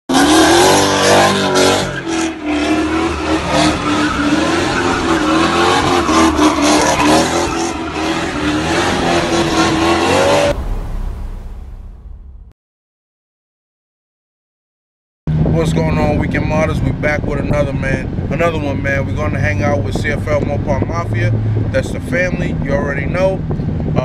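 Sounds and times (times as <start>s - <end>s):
car tyres squealing: 0.1s - 10.6s
car engine: 0.1s - 12.5s, 15.3s - 24.0s
low rumble: 2.4s - 12.6s.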